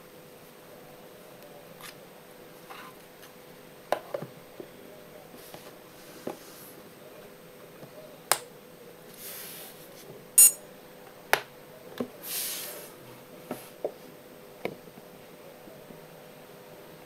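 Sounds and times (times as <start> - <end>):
sliding rubs on table: 5.4 - 6.8, 9.1 - 10.1.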